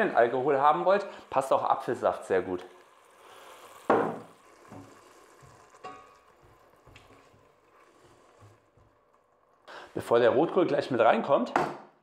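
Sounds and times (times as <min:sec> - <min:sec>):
wine hissing in hot pot: 0:00.0 - 0:10.2
quiet sizzle: 0:00.0 - 0:12.0
spoon stirring: 0:03.7 - 0:10.3.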